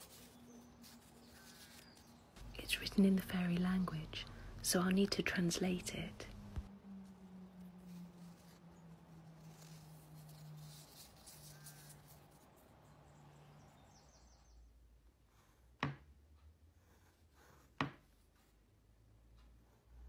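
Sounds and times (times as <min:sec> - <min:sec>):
low hum: 0:02.1 - 0:14.3
bird chirp: 0:11.3 - 0:14.8.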